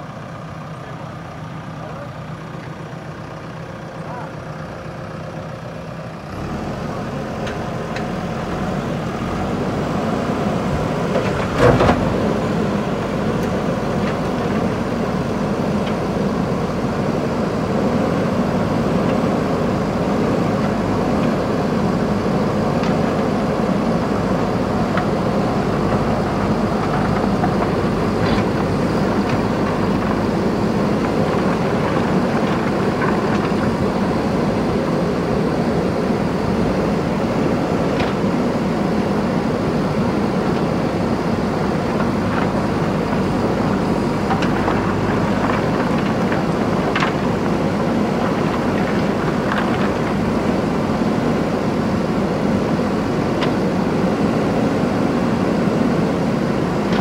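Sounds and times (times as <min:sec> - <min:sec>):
diesel engine running under load: 0:00.0 - 0:57.0
loud clatter: 0:41.8 - 0:50.6.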